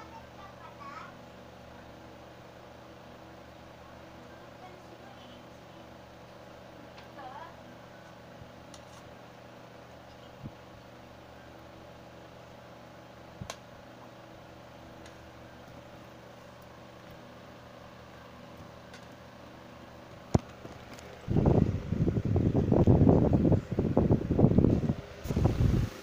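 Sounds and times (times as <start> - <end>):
low motor hum: 12.3 - 26.0.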